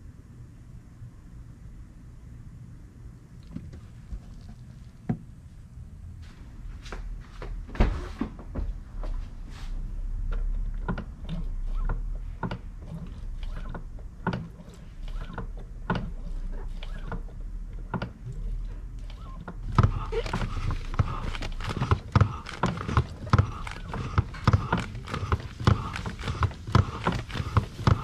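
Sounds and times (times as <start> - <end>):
hand tools clicking and knocking: 10.4 - 28.0.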